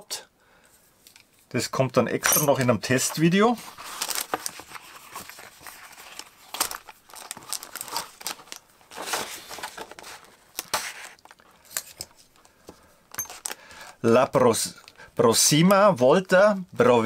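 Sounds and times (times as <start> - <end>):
tissue paper and pouch rustling: 3.0 - 11.4.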